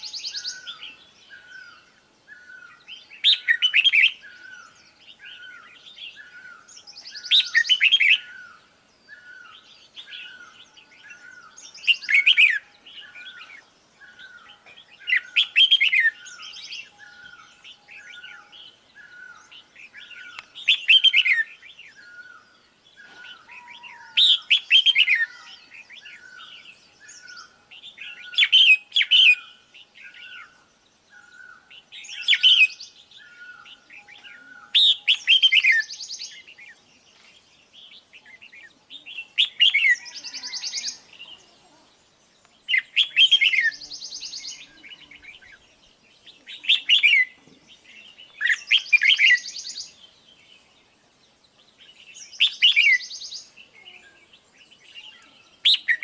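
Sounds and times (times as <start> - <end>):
bird chirping bursts: 0.0 - 36.6, 42.6 - 47.4, 48.4 - 50.8.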